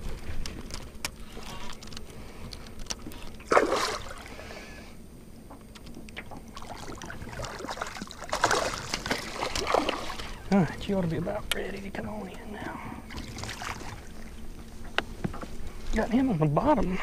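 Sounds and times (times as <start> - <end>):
fish splashing at surface: 3.5 - 4.4, 6.5 - 10.4.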